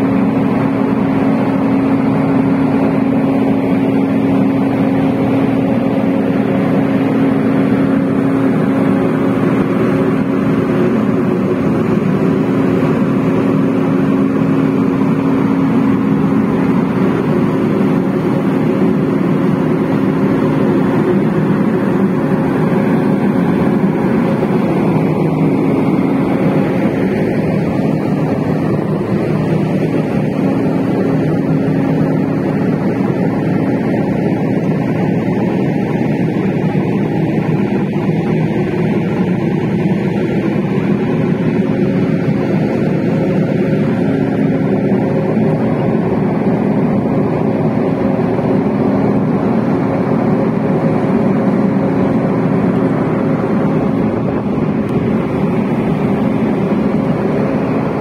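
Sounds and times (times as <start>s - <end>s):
even rushing noise: 0.0s - 58.0s
ship engine hum: 0.0s - 58.0s.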